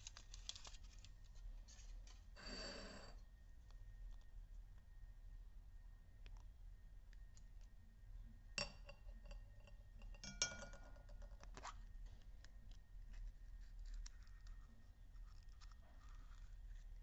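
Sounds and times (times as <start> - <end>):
chocolate shell crackling: 0.0 - 2.0.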